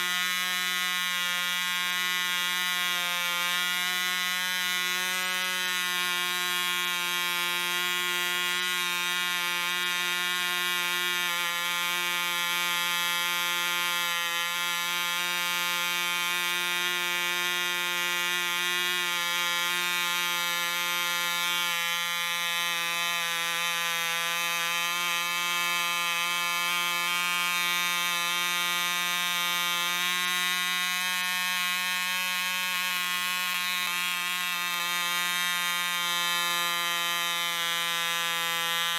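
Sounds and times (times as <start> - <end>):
model engine high-pitched buzz: 0.0 - 38.9.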